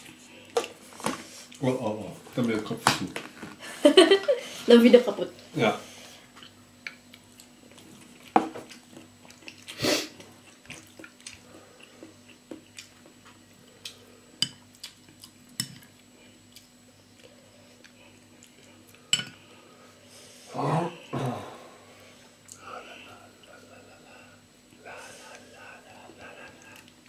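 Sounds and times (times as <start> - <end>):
low steady hum: 0.0 - 27.0
light chewing: 6.3 - 19.1, 22.4 - 27.0.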